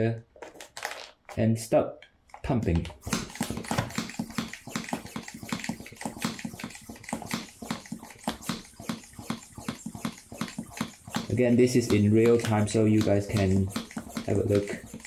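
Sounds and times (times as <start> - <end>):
hand pump strokes: 3.0 - 15.0.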